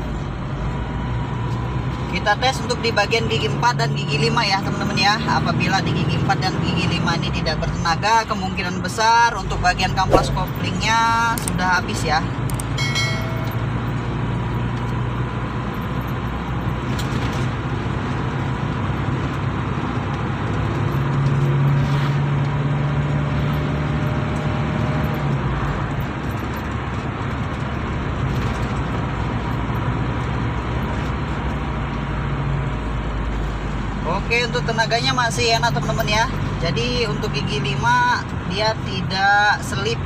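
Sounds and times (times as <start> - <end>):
road noise: 0.0 - 40.0.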